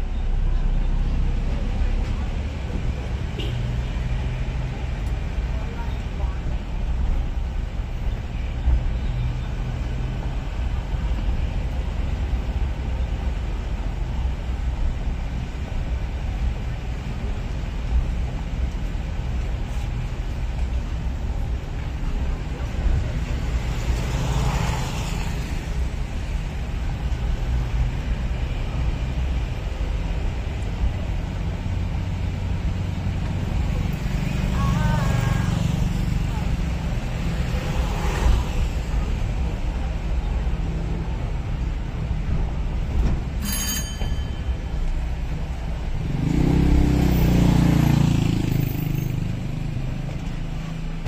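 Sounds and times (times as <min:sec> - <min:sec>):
rumble of passing vehicles: 0:00.0 - 0:51.0
brief high tone: 0:43.4 - 0:44.7
vehicle engine passing close: 0:45.9 - 0:51.0.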